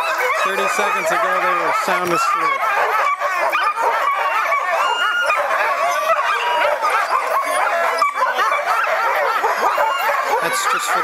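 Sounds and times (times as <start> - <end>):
dogs barking: 0.0 - 11.0.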